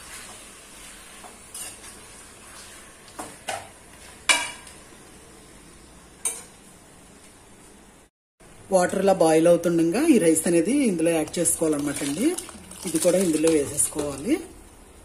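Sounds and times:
onions sizzling in a pot: 0:00.0 - 0:04.9.

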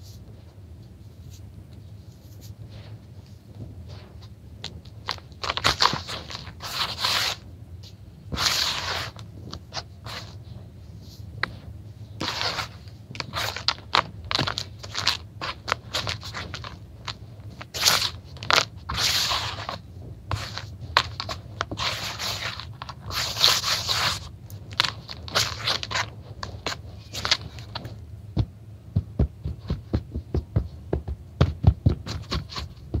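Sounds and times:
hands patting surface: 0:02.2 - 0:33.0
hands raking dry grit: 0:05.1 - 0:07.4, 0:08.3 - 0:10.4, 0:11.1 - 0:28.0.

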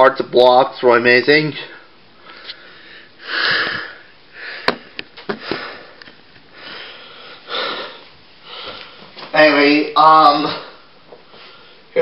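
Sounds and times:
man breathing and sniffing: 0:02.2 - 0:09.2, 0:10.8 - 0:12.0.

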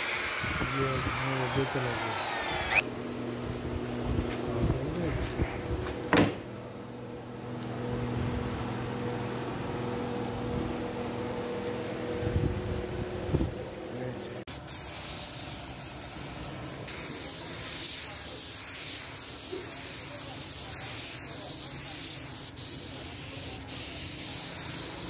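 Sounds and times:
power tool motor humming: 0:00.0 - 0:02.8
steady high hiss: 0:00.0 - 0:02.8, 0:14.5 - 0:25.0.

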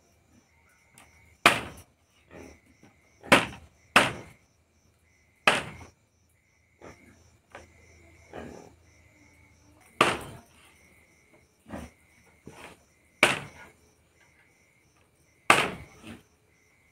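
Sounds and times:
knife chopping meat on wood: 0:01.5 - 0:01.8, 0:03.3 - 0:04.3, 0:05.5 - 0:05.9, 0:10.0 - 0:10.4, 0:13.2 - 0:13.6, 0:15.5 - 0:16.0.

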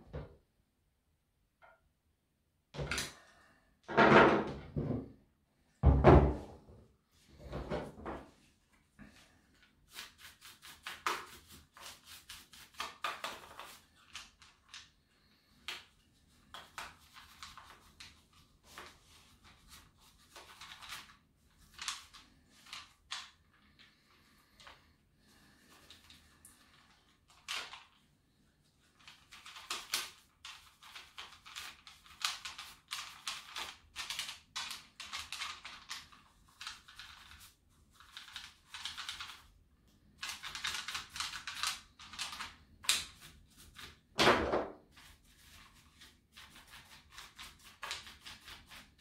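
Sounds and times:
paintbrush scrubbing plastic grille: 0:09.6 - 0:14.7, 0:15.6 - 0:28.1, 0:44.9 - 0:49.0.

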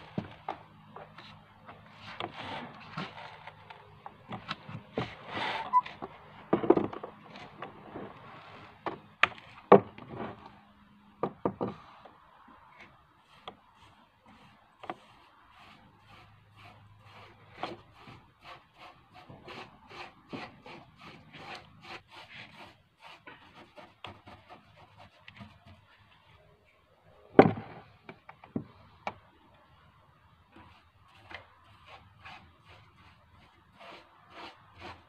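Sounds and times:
hand rubbing wooden railing: 0:04.3 - 0:06.0.

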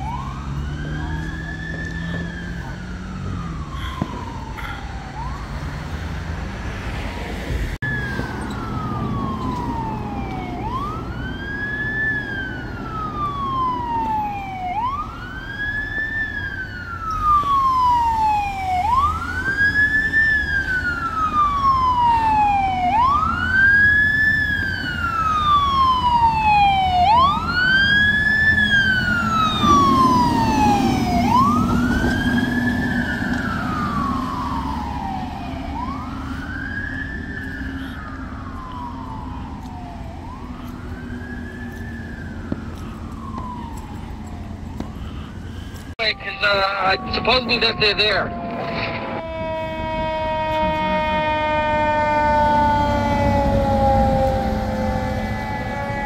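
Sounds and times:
second fainter siren: 0:00.0 - 0:06.2, 0:07.8 - 0:56.0
fire truck siren wailing: 0:00.0 - 0:56.0
deep truck rumble: 0:18.9 - 0:56.0.

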